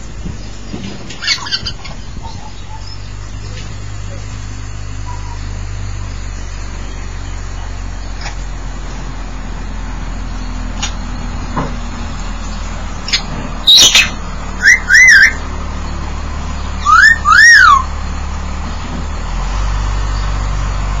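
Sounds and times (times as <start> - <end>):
parrot squawk: 1.2 - 3.0, 13.1 - 15.4, 16.8 - 17.9
parrot whistles: 13.1 - 15.4, 16.8 - 17.9.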